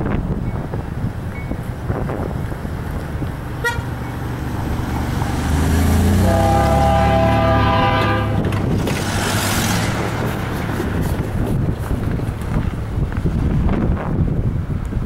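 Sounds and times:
diesel engine rumble: 0.0s - 15.0s
locomotive air horn blast: 3.6s - 4.0s, 6.0s - 8.6s.

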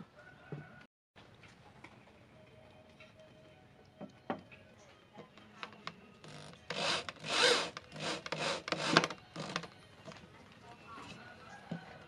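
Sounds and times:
electric drill driving screws into wood: 6.2s - 9.7s.

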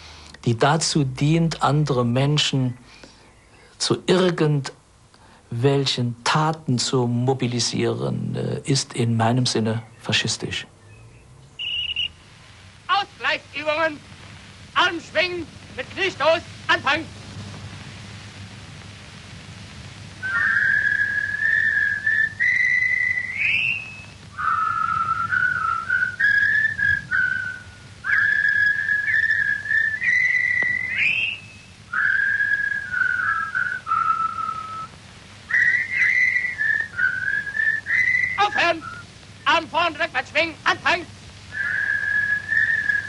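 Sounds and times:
faint low hum: 0.0s - 43.0s
person whistling a tune: 20.2s - 31.4s, 32.0s - 34.9s, 41.6s - 43.0s.

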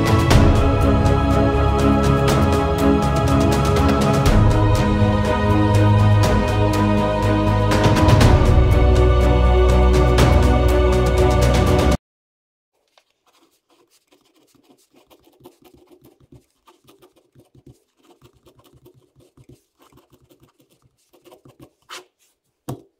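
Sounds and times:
background music: 0.0s - 12.0s
ballpoint pen scratching on paper: 12.8s - 22.8s.

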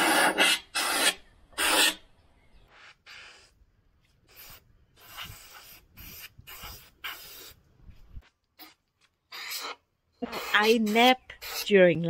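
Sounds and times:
paint spray gun hissing: 4.3s - 7.6s, 10.3s - 11.6s.

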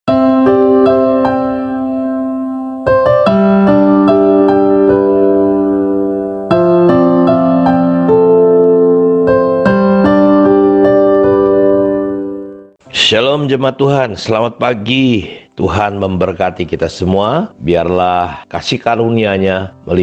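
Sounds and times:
slow keyboard chords: 0.1s - 12.9s.

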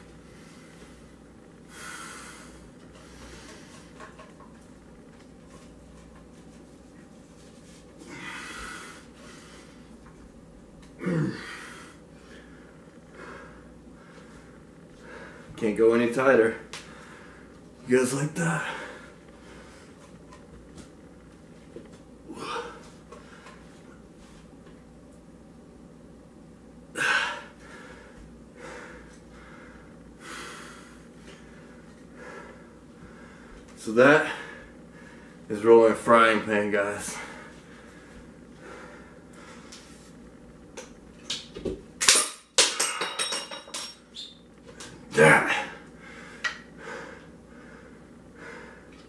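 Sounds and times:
man breathing heavily: 0.0s - 4.3s, 8.0s - 10.2s, 11.0s - 15.6s, 16.8s - 17.7s, 18.4s - 20.1s, 22.2s - 24.4s, 26.9s - 35.5s, 36.9s - 40.2s, 44.9s - 49.0s
man breathing out forcefully: 8.0s - 9.8s
man grunting: 11.0s - 11.7s, 22.3s - 22.8s, 45.1s - 45.8s.

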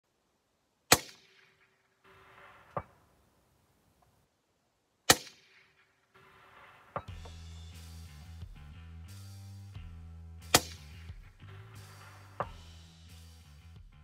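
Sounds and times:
rifle shots: 0.9s - 3.2s, 5.1s - 7.2s, 10.5s - 10.9s.

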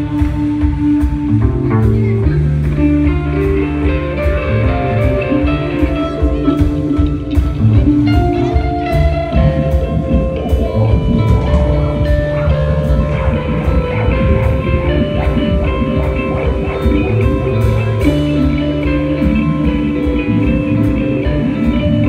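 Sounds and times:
live rock band playing: 0.0s - 22.0s
drum hits: 4.0s - 22.0s.

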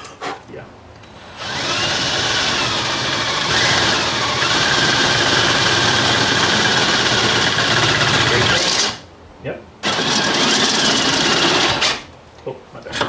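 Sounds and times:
cordless drill motor whine: 1.0s - 8.9s.

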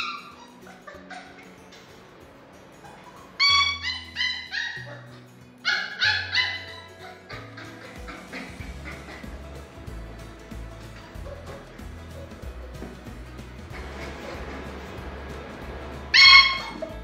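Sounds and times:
puppy whining and yipping: 0.0s - 2.0s, 2.8s - 9.2s, 16.1s - 17.0s
background music with bass line: 3.4s - 17.0s.

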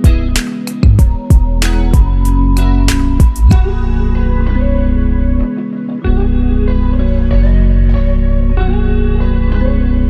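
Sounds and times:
sharp beats: 0.0s - 4.1s
instrumental guitar music: 0.0s - 10.0s
low bass: 0.0s - 10.0s.

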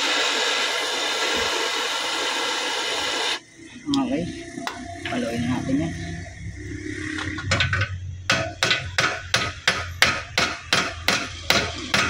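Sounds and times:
hammer striking metal bracket: 7.4s - 12.0s.

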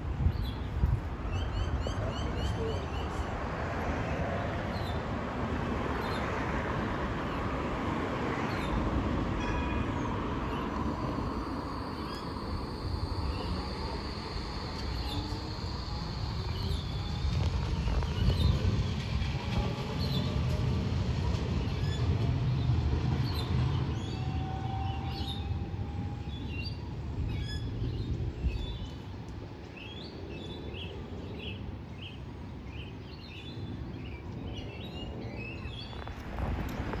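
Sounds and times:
tram rolling and motor noise: 0.0s - 37.0s
high steady whine: 10.1s - 18.8s.

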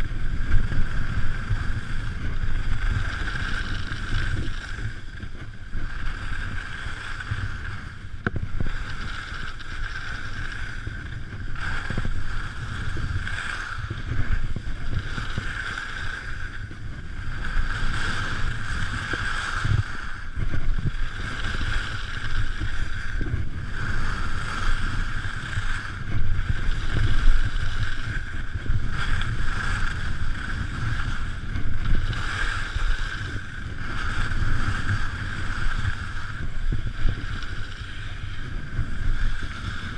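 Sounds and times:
skis scraping on snow: 0.0s - 39.9s
wind buffeting microphone: 0.0s - 39.9s.

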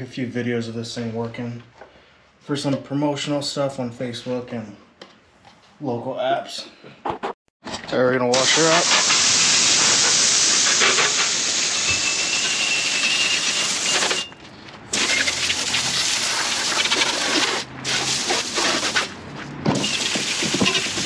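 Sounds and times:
hose spray hissing: 8.4s - 14.2s, 14.9s - 19.1s.

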